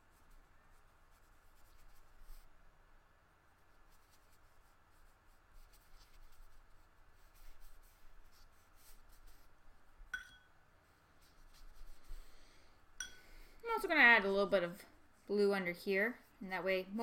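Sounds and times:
paintbrush strokes on paper: 0.0s - 10.2s, 10.8s - 12.7s.

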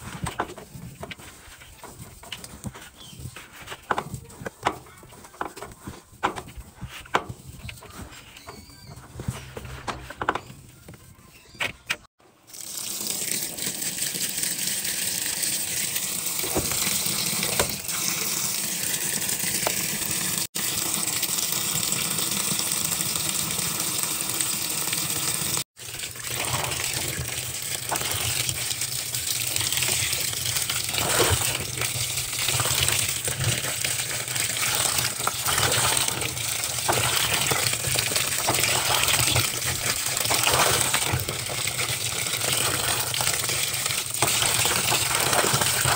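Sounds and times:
water gushing into drum: 12.4s - 45.9s
hand sloshing wet clothes: 26.1s - 45.9s.

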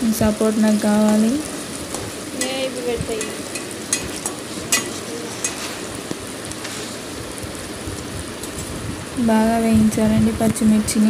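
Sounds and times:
chillies sizzling in hot oil: 0.0s - 11.0s
steel spoon clinking and scraping: 3.2s - 5.8s.

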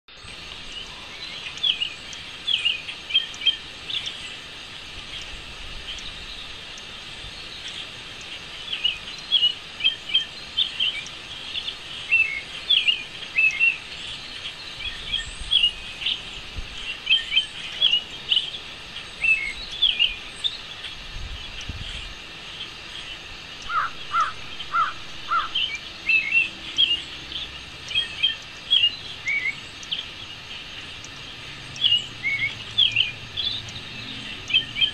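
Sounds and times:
songbirds chirping: 0.1s - 34.9s
steady outdoor hiss: 0.1s - 34.9s.

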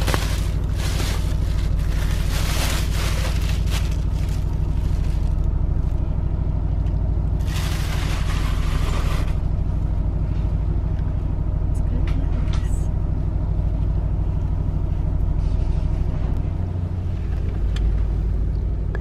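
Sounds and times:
plastic wrapping crinkling: 0.0s - 6.0s, 7.4s - 8.6s
train carriage hum: 0.0s - 19.0s.

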